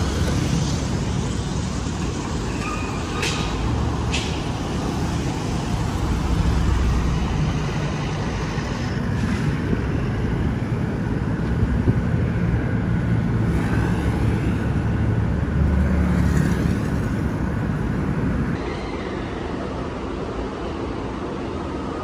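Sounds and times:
cars passing: 0.0 - 18.6.

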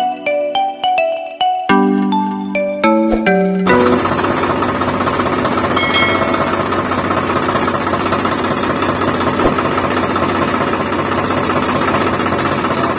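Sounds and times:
small tractor motor rattling: 3.7 - 5.8, 6.4 - 12.9.

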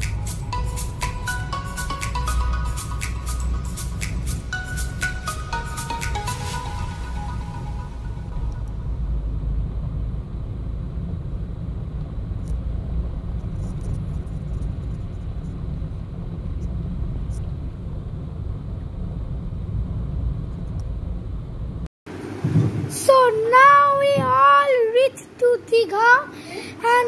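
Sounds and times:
car engine and tyres rumbling: 8.3 - 21.9.

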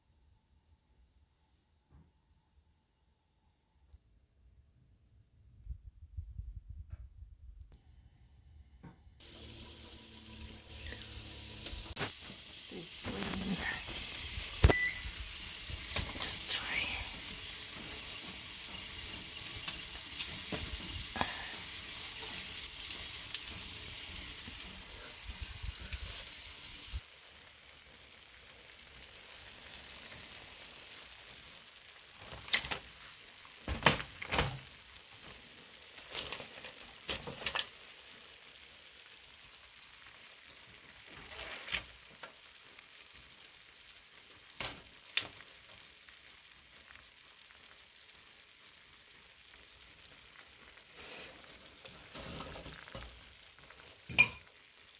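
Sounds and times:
thin high steady tone: 7.8 - 27.0
fish sizzling in oven: 7.8 - 54.9.

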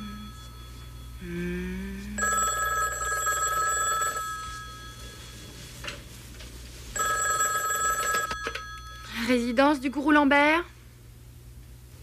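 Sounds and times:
telephone ringing: 2.2 - 6.1, 7.0 - 9.9.

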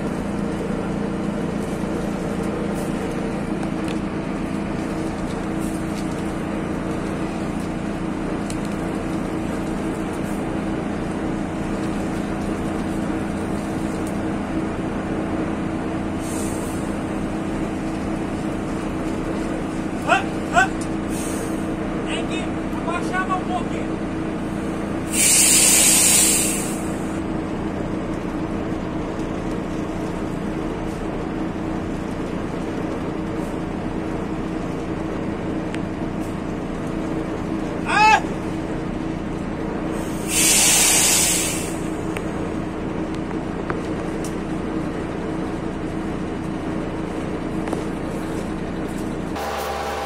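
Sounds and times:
machinery humming: 0.0 - 50.0
air hissing: 16.2 - 17.0, 25.0 - 27.2, 39.9 - 42.0.

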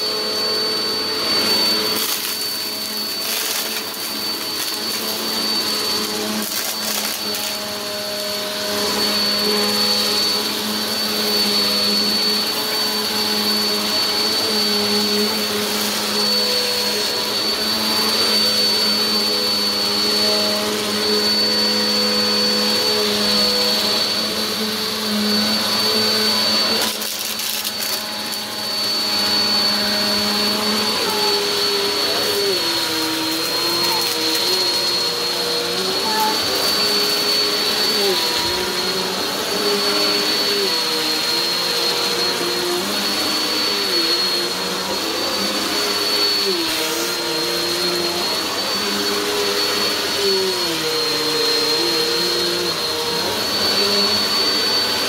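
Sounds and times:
vacuum cleaner running over carpet: 0.0 - 55.0.

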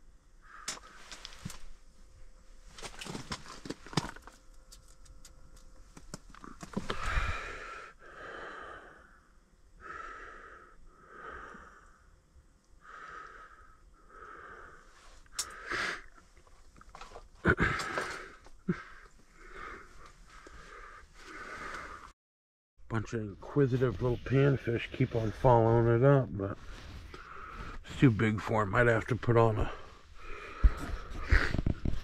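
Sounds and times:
man breathing wheezily: 6.7 - 12.1, 12.8 - 16.2, 17.5 - 22.1, 26.9 - 27.8, 29.8 - 32.0.

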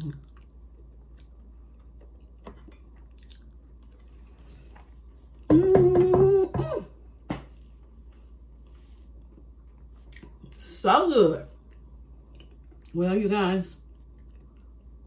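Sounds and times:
woman chewing with mouth clicks: 0.0 - 4.2, 11.6 - 13.0, 13.9 - 15.0
woman humming mmm of enjoyment: 5.5 - 6.9.

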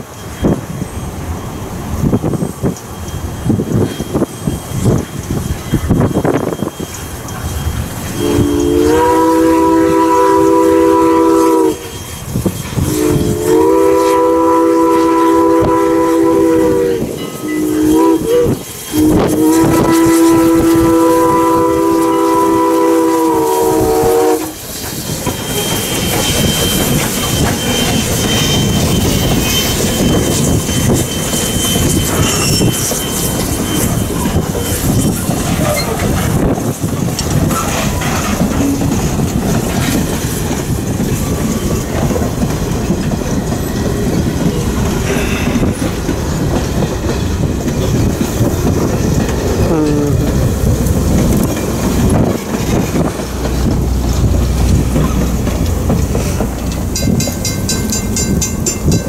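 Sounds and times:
train wheels clicking over rail joints: 0.0 - 59.0
steam locomotive whistle blasts: 5.6 - 36.5, 43.6 - 46.0, 49.4 - 55.3.

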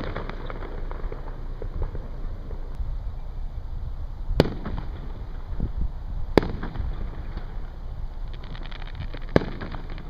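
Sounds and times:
firework shells bursting: 0.0 - 2.8, 6.3 - 10.0.

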